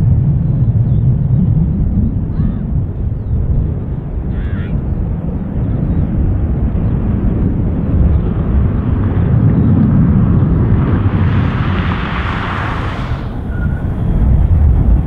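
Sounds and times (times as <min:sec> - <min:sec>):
jet engines rumbling: 0:00.0 - 0:15.0
rushing hiss: 0:11.0 - 0:14.1.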